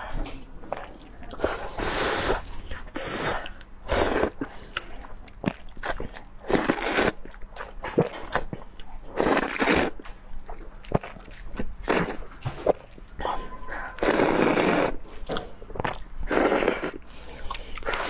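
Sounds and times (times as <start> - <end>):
person chewing: 0.6 - 18.0
wet noodle slurps: 6.5 - 7.3, 14.0 - 15.0.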